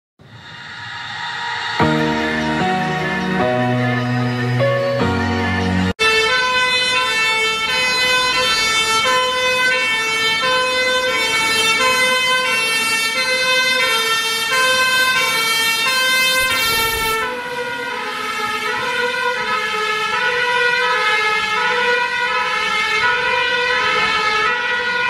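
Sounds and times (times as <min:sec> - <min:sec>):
rush of passing truck: 0:00.2 - 0:05.0
fire engine two-tone siren: 0:00.4 - 0:25.0.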